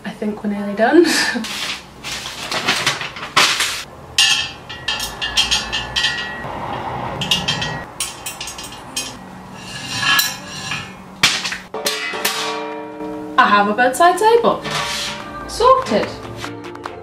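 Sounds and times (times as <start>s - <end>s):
metal tubes knocking and clinking: 2.6s - 13.2s.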